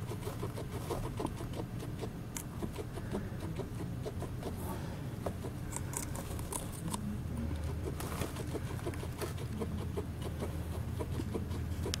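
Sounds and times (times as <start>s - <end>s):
guinea pig chewing celery: 0.0s - 12.0s
low steady hum: 0.0s - 12.0s.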